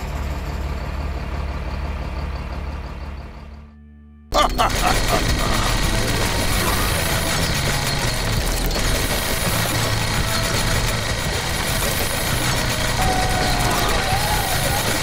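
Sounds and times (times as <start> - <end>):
toy motor throbbing: 4.4 - 15.0.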